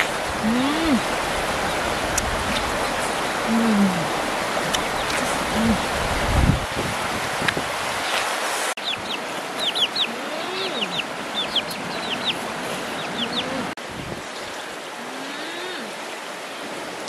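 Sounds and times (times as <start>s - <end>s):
stream rushing: 0.0s - 17.0s
chicks peeping: 8.8s - 13.7s.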